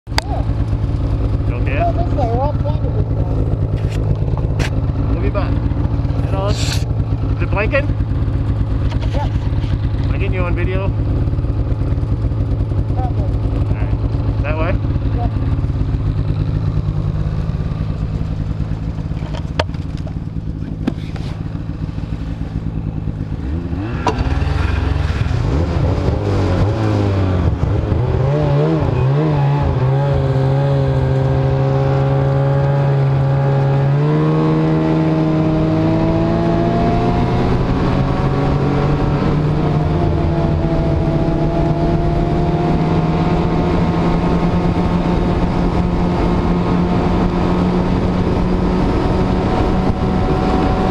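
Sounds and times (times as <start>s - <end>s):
snowmobile engine: 0.2s - 50.9s.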